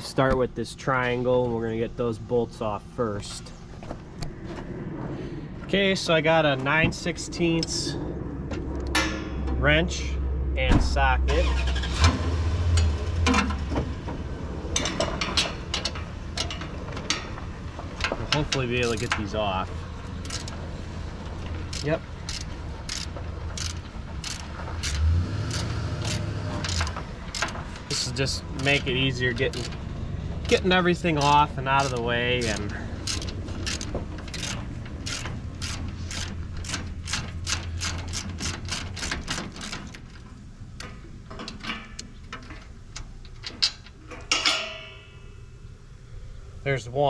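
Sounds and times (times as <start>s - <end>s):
low steady rumble: 0.0s - 47.0s
socket ratchet clicking: 31.2s - 40.1s
ringing metallic clink: 44.3s - 45.7s.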